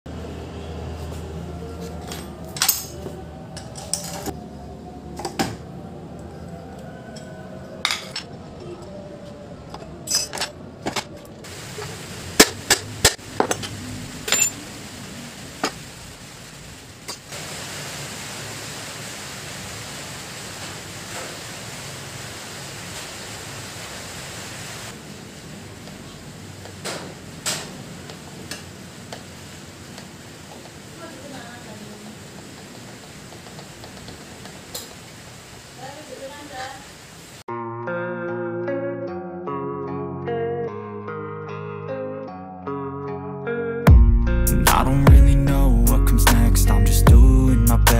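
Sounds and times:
metal parts clinking: 0:10.1 - 0:11.2, 0:13.4 - 0:14.6
steady hiss: 0:11.5 - 0:37.4.

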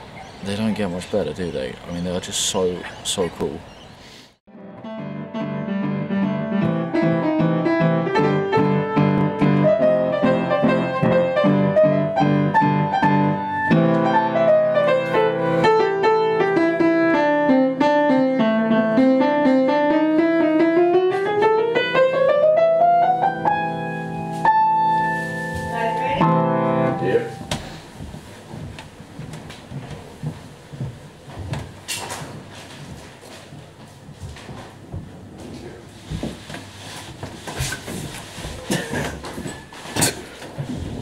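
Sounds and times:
upright piano playing: 0:04.5 - 0:27.8.

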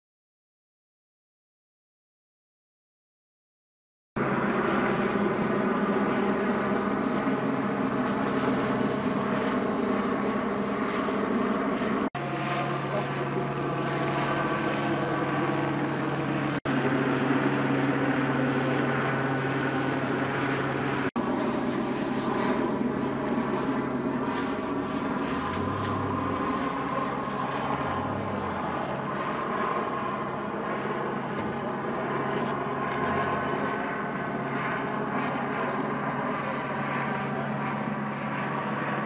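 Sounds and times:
low hum: 0:12.2 - 0:35.1
engine drone with held tones: 0:12.2 - 0:36.2.

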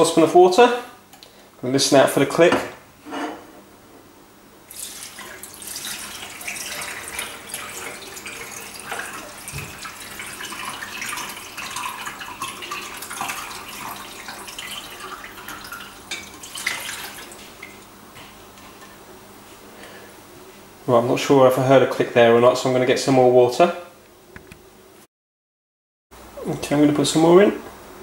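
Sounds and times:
water pouring and splashing: 0:04.7 - 0:17.9.

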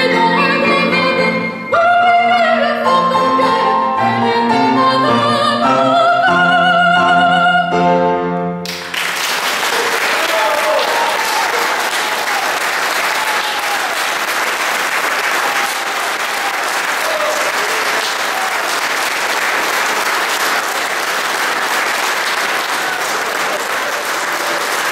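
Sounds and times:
audience applauding: 0:08.7 - 0:24.9.

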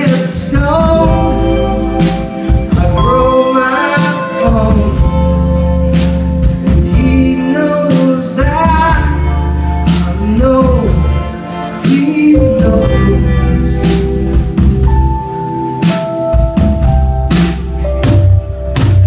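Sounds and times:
man singing lead: 0:00.0 - 0:14.6
live band playing: 0:00.0 - 0:19.0.

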